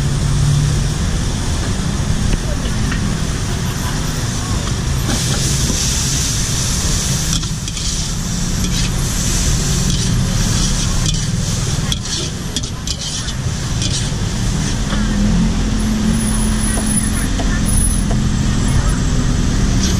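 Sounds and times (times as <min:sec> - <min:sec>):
noodles sizzling in a wok: 0:05.2 - 0:14.9
metal ladle stirring: 0:07.4 - 0:09.0, 0:09.9 - 0:14.7
steady low rumble: 0:13.3 - 0:19.9.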